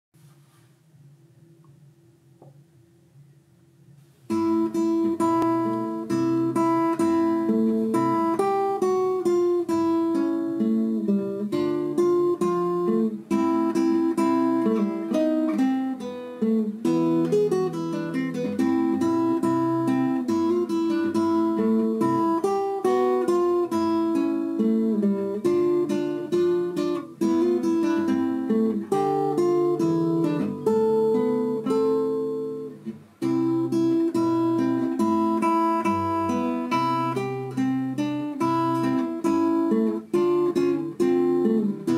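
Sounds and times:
acoustic guitar music: 4.0 - 41.9.

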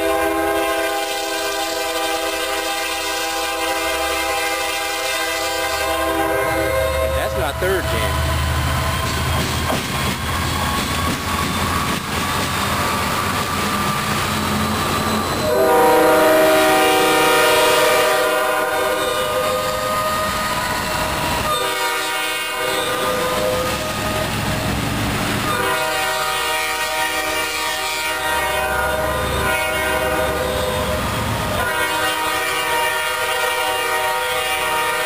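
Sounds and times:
locomotive air horn blasts: 0.0 - 8.4, 15.4 - 20.5, 21.4 - 24.2, 25.5 - 35.0
engine and rail rumble: 0.0 - 35.0.

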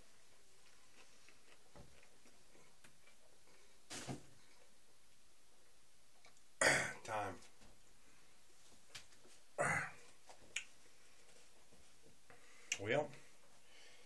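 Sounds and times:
man chewing food: 0.1 - 3.8
man grunting: 9.6 - 10.0
mouth clicks: 10.5 - 10.7.

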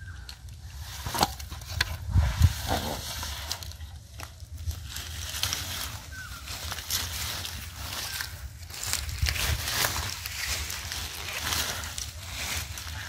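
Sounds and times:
leaves crackling in wet mud: 2.6 - 13.0.

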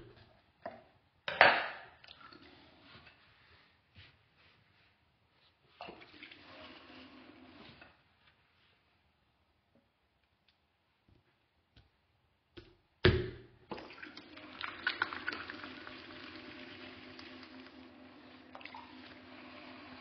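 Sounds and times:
potter's wheel humming: 14.2 - 20.0.

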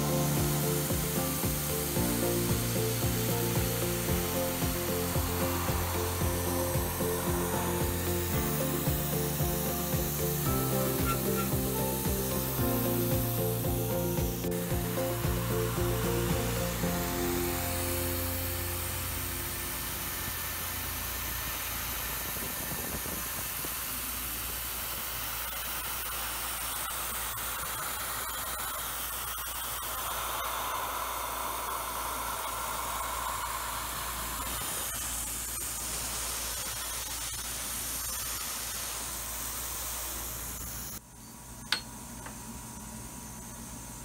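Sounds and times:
spindle hum: 0.0 - 23.2
mist coolant spraying hiss: 0.0 - 41.0.

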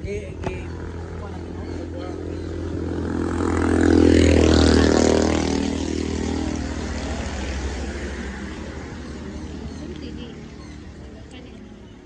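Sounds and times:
vehicle passing: 0.0 - 12.0.

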